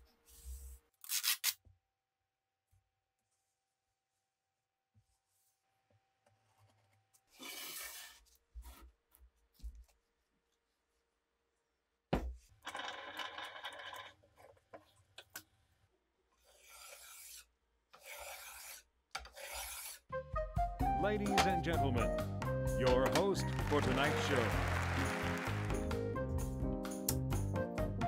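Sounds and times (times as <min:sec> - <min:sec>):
tape rubbing and handling: 0:00.4 - 0:01.6
file rasping on blade: 0:16.4 - 0:20.1.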